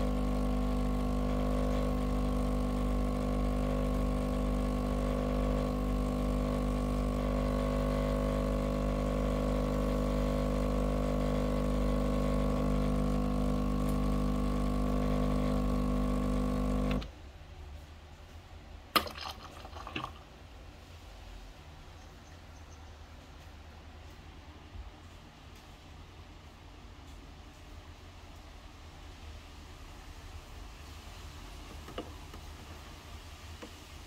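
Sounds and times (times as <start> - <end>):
espresso machine pump humming: 0.0 - 17.1, 19.0 - 20.2.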